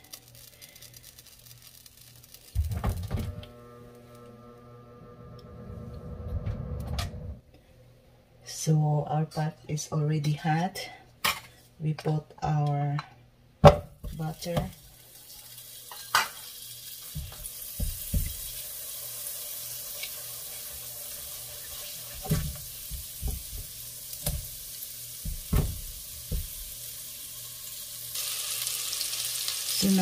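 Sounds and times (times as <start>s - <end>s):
butter sizzling in a pot: 0.0s - 4.2s, 14.0s - 30.0s.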